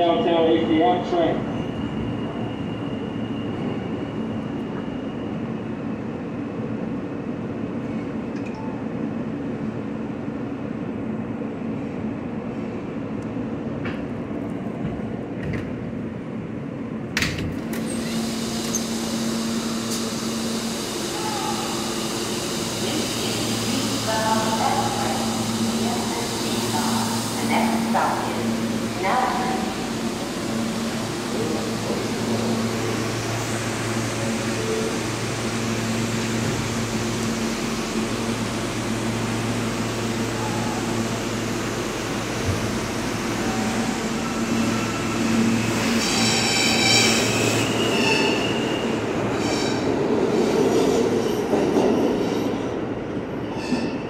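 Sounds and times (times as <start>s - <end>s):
subway train equipment hum and hiss: 0.0s - 54.0s
train doors sliding open: 13.7s - 16.1s, 17.1s - 39.0s.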